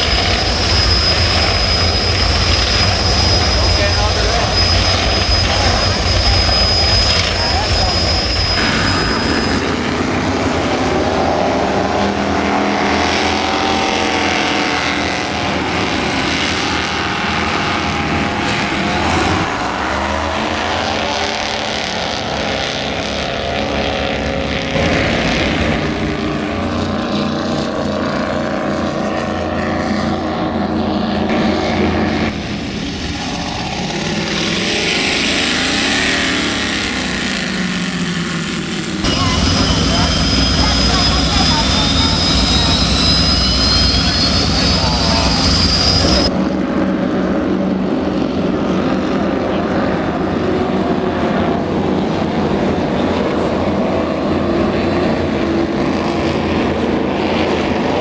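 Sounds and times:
powerboat engines racing: 0.0s - 58.0s.

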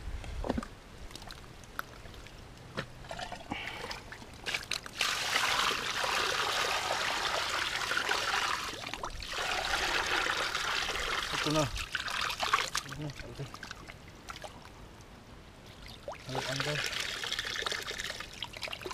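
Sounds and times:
water pouring and splashing: 3.0s - 14.8s, 15.6s - 18.9s.

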